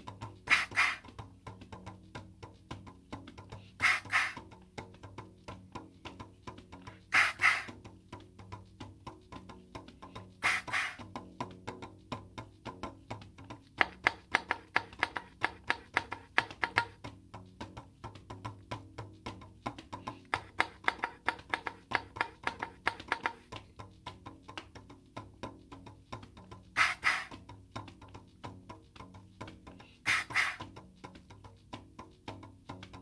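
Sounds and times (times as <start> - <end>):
fingers tapping balloon membrane: 0.0 - 5.4, 6.0 - 33.0.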